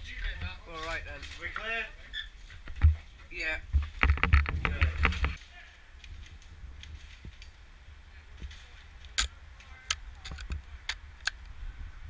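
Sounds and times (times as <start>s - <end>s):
sharp clicks and snaps: 8.4s - 11.6s.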